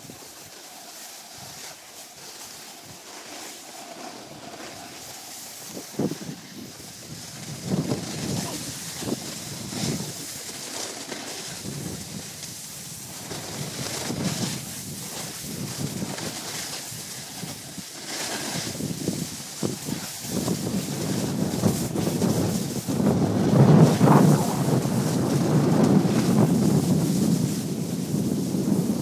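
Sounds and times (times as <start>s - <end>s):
hiss of sliding on snow: 0.0s - 29.0s
wind buffeting microphone: 4.3s - 10.4s, 11.5s - 29.0s.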